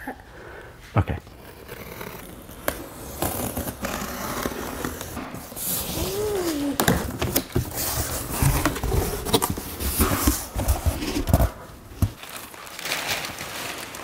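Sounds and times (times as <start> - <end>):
cardboard box tearing: 1.4 - 13.4
packing paper crumpling and rustling: 4.4 - 14.0.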